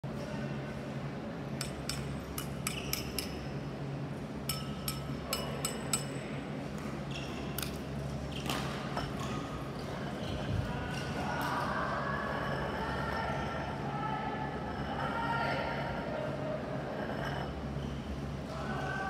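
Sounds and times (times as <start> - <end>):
steady low hum: 0.0 - 19.0
ceramic clinks with ringing tone: 4.5 - 6.1.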